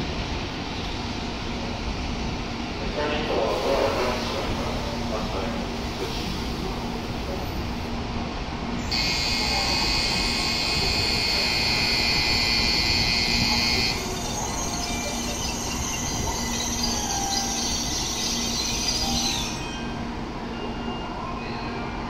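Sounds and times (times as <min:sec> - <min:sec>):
electronic departure bell ringing: 0:08.9 - 0:15.4.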